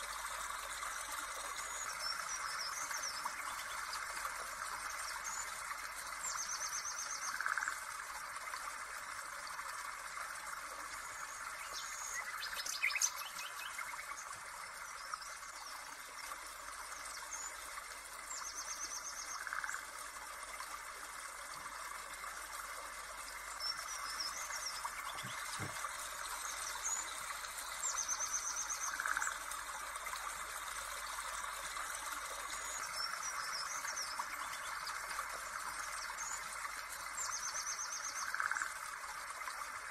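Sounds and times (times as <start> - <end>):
running water hiss: 0.0 - 39.9
birds chirping and trilling: 23.6 - 29.3.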